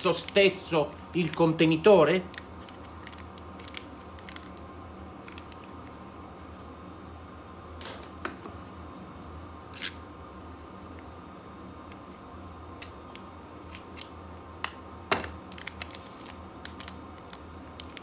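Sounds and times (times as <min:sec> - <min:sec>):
foil packet crinkling: 0:00.0 - 0:04.6, 0:15.4 - 0:18.0
steady low hum: 0:00.0 - 0:18.0.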